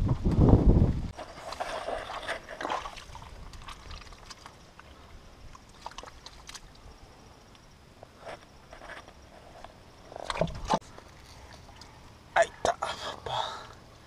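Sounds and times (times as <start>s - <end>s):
mud squelching and sloshing: 1.2s - 7.0s.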